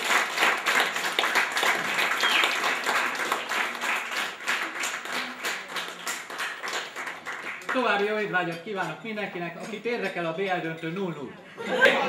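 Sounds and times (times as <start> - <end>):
crowd applauding: 0.0 - 8.3.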